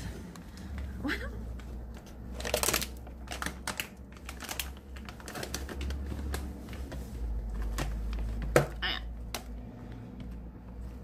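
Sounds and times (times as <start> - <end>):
plastic snack bag crackling: 2.1 - 8.6.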